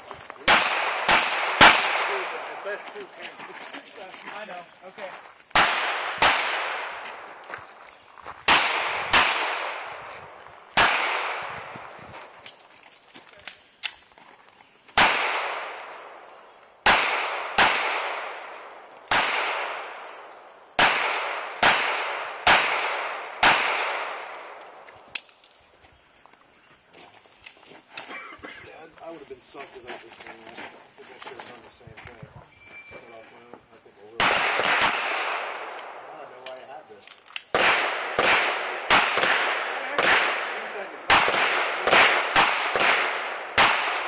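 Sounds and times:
handgun shots with echo: 19.1s - 20.2s, 34.2s - 35.9s, 37.5s - 44.0s.

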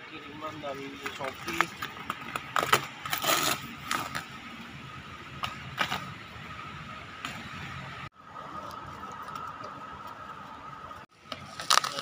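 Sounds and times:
bubble wrap rustling and crinkling: 11.4s - 12.0s.

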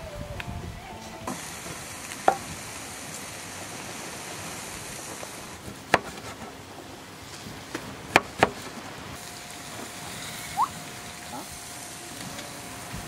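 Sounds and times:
steady hiss: 0.0s - 13.0s
blade knocking a wooden board: 5.9s - 6.3s, 8.1s - 8.6s.

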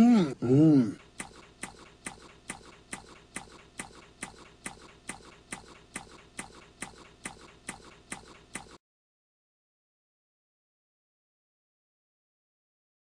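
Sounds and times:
clock ticking: 0.8s - 8.8s.

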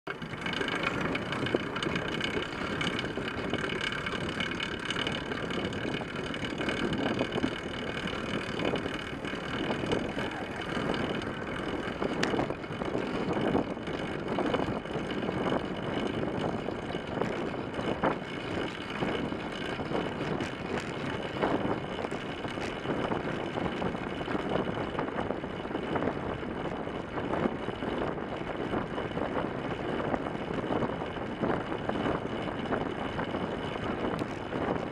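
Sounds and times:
bicycle tyre hum: 0.1s - 34.9s
wind rushing over microphone: 0.1s - 34.9s.

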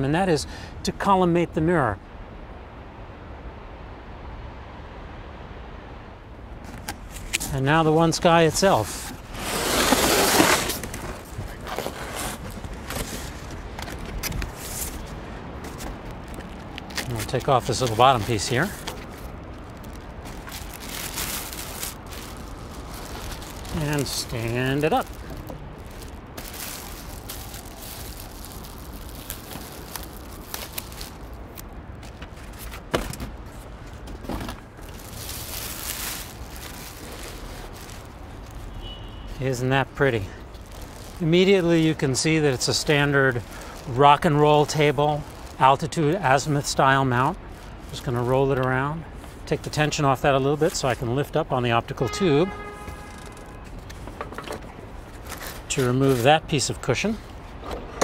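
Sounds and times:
packaging rustle: 8.7s - 32.9s, 33.9s - 38.7s, 40.0s - 48.7s, 52.9s - 54.1s, 55.1s - 56.6s
cardboard box rustling and scraping: 8.8s - 15.0s.

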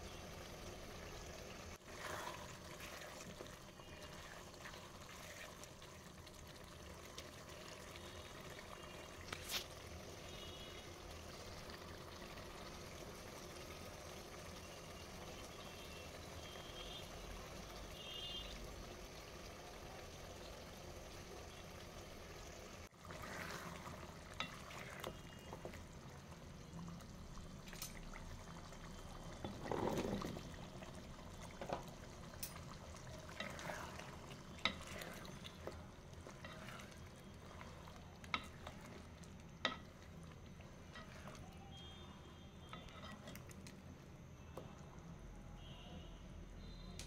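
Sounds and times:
liquid sloshing in pot: 1.8s - 10.8s, 22.8s - 41.9s.

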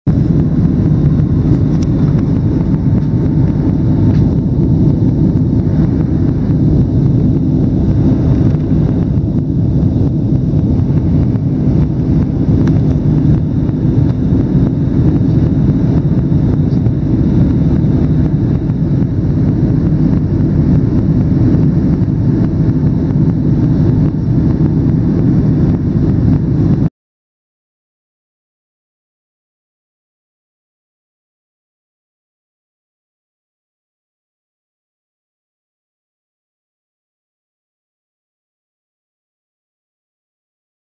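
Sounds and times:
airliner cabin engine drone: 0.1s - 26.9s.

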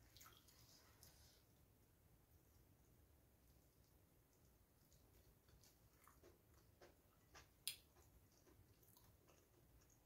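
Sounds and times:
chewing food: 3.8s - 10.0s.

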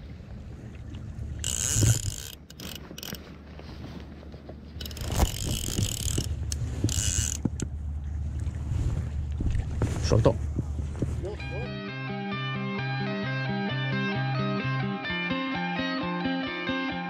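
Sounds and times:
fishing reel drag buzzing: 1.4s - 3.2s, 4.8s - 7.4s.

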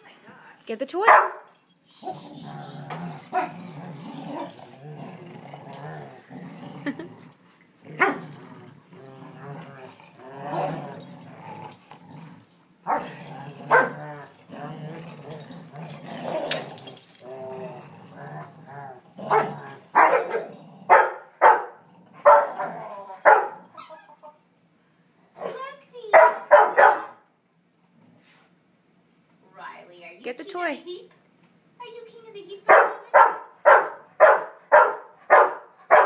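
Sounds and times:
dogs growling in play: 1.8s - 24.4s
loud sharp dog barks: 20.9s - 22.6s, 26.2s - 27.1s, 32.7s - 36.0s.

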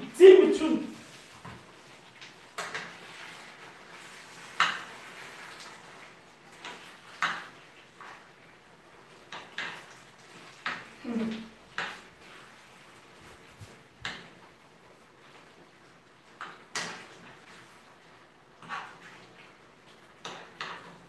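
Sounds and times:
utensil scraping a frying pan: 18.6s - 19.6s.

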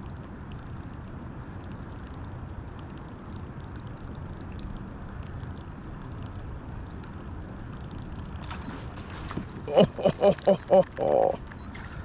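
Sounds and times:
faint small ticks: 0.0s - 9.2s
river water rushing: 8.6s - 12.0s.

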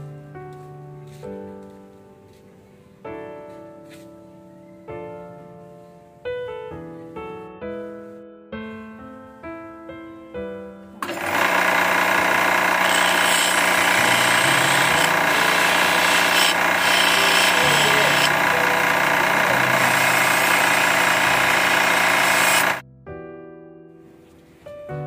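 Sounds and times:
grinder motor hum: 11.0s - 22.8s
steel grinding on stone wheel: 11.0s - 22.8s.

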